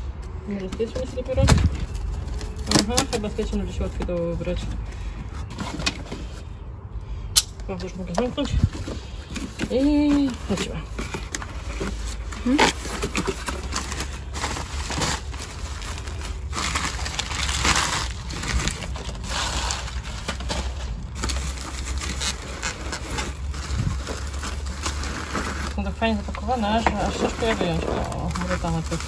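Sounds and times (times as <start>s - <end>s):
paper and bubble wrap crinkling: 0.0s - 6.6s, 8.2s - 29.0s.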